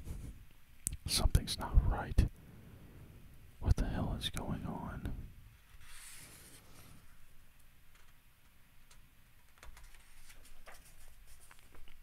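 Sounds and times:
paper book handling: 5.6s - 7.0s, 9.6s - 12.0s.

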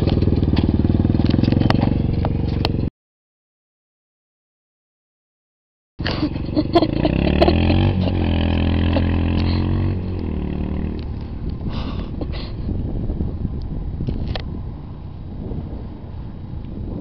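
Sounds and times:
quad bike engine revving: 0.0s - 2.9s, 6.0s - 11.5s.

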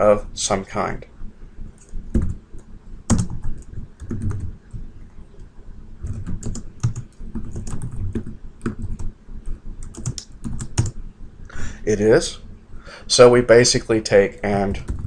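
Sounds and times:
typing on computer keyboard: 3.1s - 4.5s, 6.0s - 9.1s, 9.8s - 11.0s, 14.8s - 15.0s.

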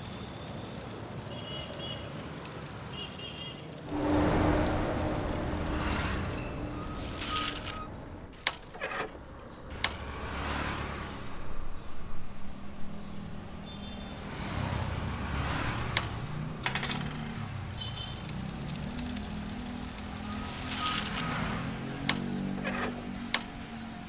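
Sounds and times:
vehicle engine running: 3.8s - 8.3s.

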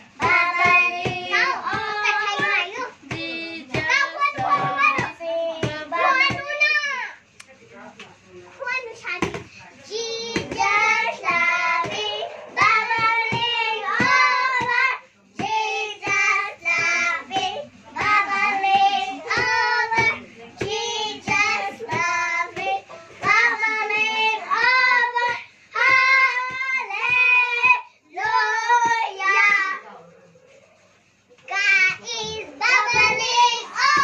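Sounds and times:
girls singing loudly: 0.1s - 6.6s, 10.1s - 29.8s, 31.5s - 34.0s.

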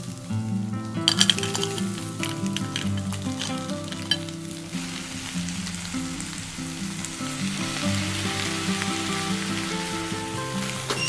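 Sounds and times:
sizzling in a pot: 0.0s - 11.0s
soft background music: 0.0s - 11.0s
clam shells clicking: 1.1s - 4.4s.

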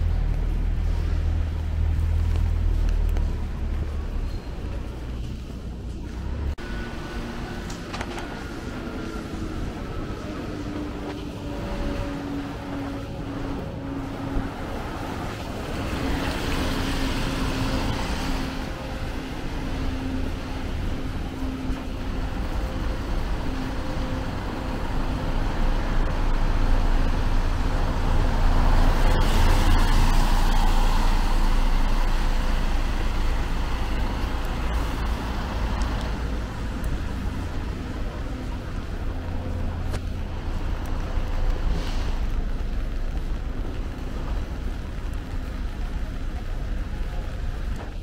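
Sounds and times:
large vehicle engine hum: 0.0s - 48.0s
vehicles passing with low rumble: 0.0s - 48.0s.

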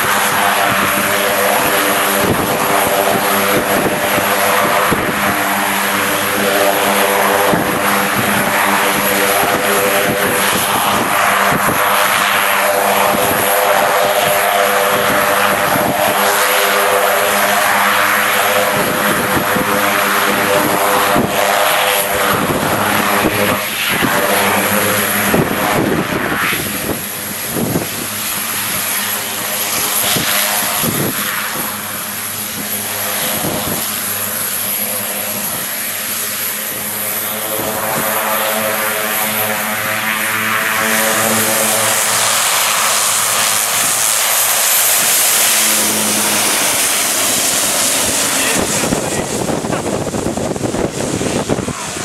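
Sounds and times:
high engine whine: 0.0s - 52.0s
turboprop engine droning: 0.0s - 52.0s.

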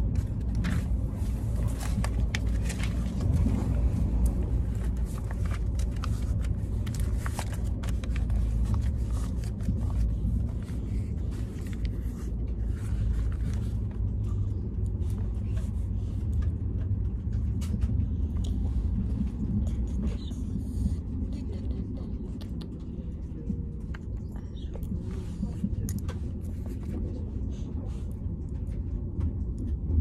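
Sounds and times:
paper rustling: 0.0s - 14.4s, 25.0s - 27.2s
train rumble: 0.0s - 30.0s.

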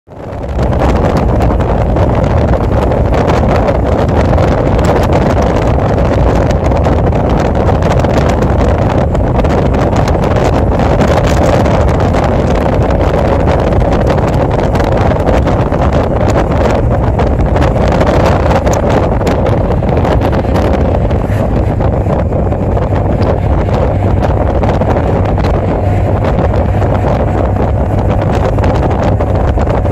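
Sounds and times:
motorcycle engine and tyre noise: 0.1s - 29.9s
wind buffeting microphone: 0.1s - 29.9s.

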